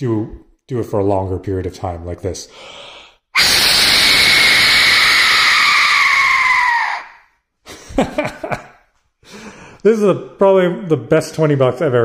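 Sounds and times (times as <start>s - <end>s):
whistle shrieking: 3.4s - 7.3s.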